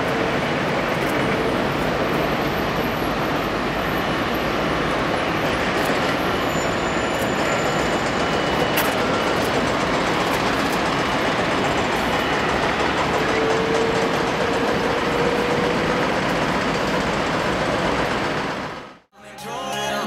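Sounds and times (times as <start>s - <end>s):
distant jet engine roar: 0.0s - 19.1s
music: 19.1s - 20.0s.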